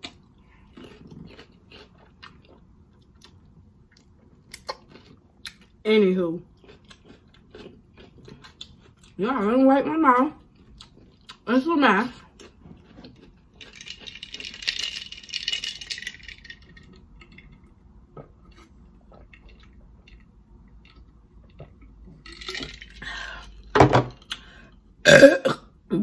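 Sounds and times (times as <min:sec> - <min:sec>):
glass jar clinking: 0:22.2 - 0:23.2
person gulping: 0:25.0 - 0:25.8.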